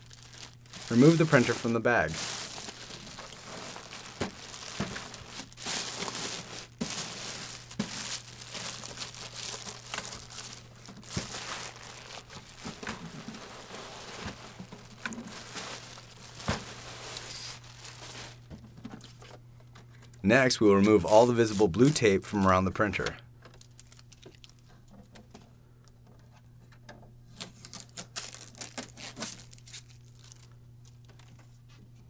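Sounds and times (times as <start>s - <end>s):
plastic bag crinkling: 0.0s - 18.5s, 20.8s - 22.2s, 23.4s - 24.8s, 27.6s - 31.4s.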